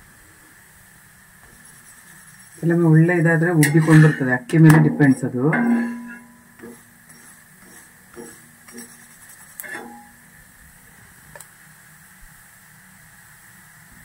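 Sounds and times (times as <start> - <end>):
faint steady hiss: 0.0 - 14.0
metal spatula knocking on pan: 3.6 - 10.2.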